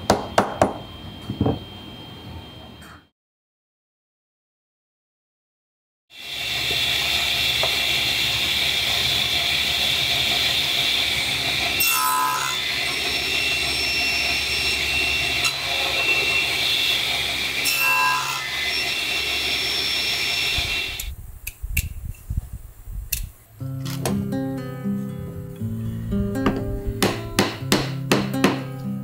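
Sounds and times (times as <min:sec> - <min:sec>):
table saw cutting wood: 0:06.2 - 0:21.1
knife clicks trimming cane: 0:21.0 - 0:22.2, 0:23.1 - 0:24.0.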